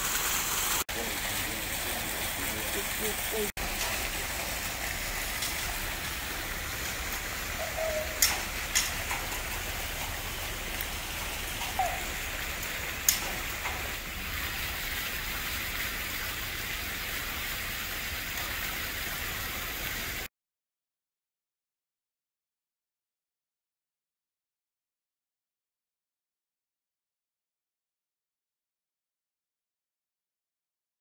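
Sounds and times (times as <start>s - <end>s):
steady rushing hiss: 0.0s - 20.3s
sharp clicks: 8.1s - 10.1s, 12.6s - 13.9s.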